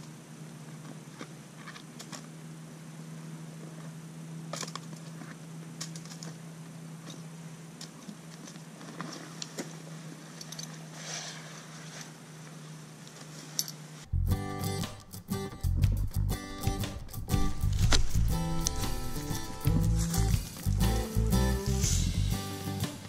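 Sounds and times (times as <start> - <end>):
steady low hum: 0.0 - 23.0
nylon gear rustling: 7.9 - 14.0, 17.4 - 22.1.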